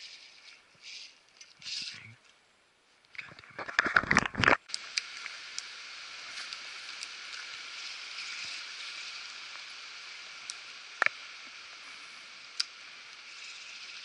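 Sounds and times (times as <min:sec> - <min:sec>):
rain hissing on creek and forest: 0:04.6 - 0:14.0.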